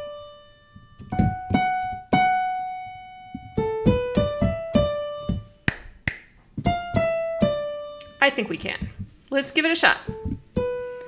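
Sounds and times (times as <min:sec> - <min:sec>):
digital piano notes: 0:00.0 - 0:05.7, 0:06.5 - 0:11.0
hand claps: 0:05.7 - 0:06.4.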